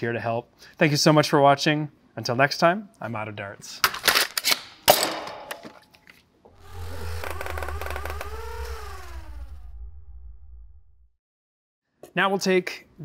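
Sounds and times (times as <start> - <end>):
logo whir with gliding tones: 6.5 - 11.2.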